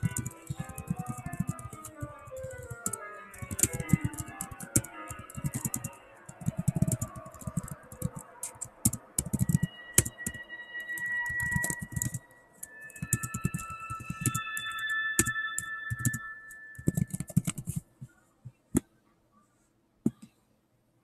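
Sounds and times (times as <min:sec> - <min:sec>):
laptop keyboard typing: 0:00.0 - 0:17.8
background music: 0:00.0 - 0:18.0.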